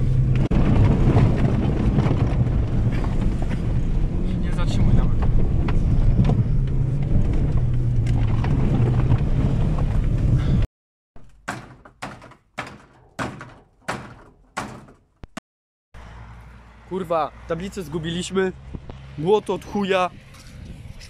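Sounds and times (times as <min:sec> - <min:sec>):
car engine and tyre rumble: 0:00.0 - 0:10.7, 0:16.0 - 0:21.0
knocks from bumps: 0:11.2 - 0:15.1
sharp knocks: 0:11.2 - 0:15.2.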